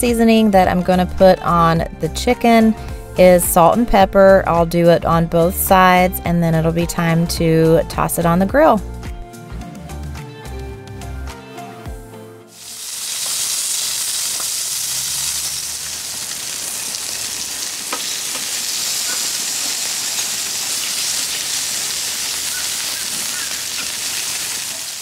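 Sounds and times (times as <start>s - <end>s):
chicken sizzling on grill: 12.5s - 25.0s.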